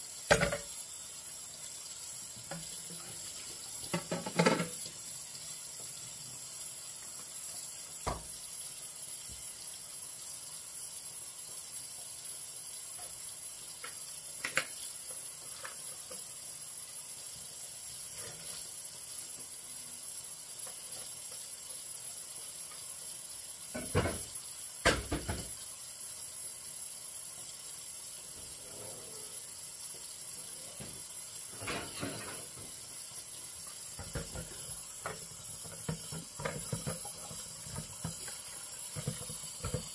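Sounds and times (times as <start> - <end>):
faint hiss: 0.0 - 39.9
bottles and dishes clunking in sink: 0.3 - 0.7, 3.9 - 4.8, 23.8 - 25.6, 30.8 - 32.8, 34.0 - 39.9.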